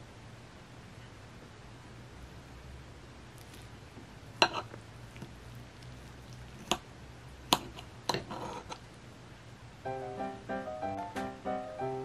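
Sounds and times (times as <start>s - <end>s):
soft crackle: 3.3s - 9.0s.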